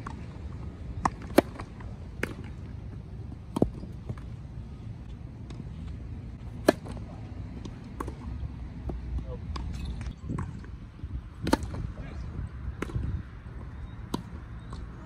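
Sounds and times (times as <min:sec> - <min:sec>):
low outdoor rumble: 0:00.0 - 0:15.0
racket striking a serve: 0:01.0 - 0:02.4, 0:06.5 - 0:07.0, 0:11.4 - 0:11.9.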